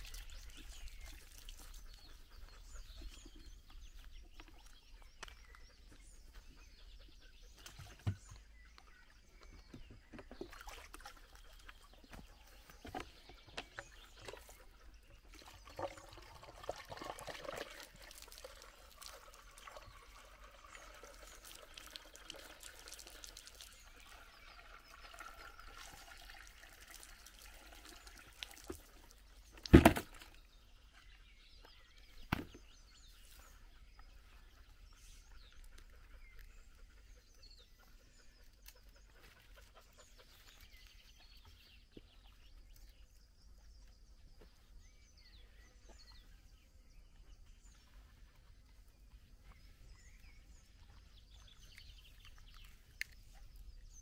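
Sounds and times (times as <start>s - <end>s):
water pouring and trickling: 0.0s - 2.9s, 10.1s - 12.4s, 13.2s - 30.5s.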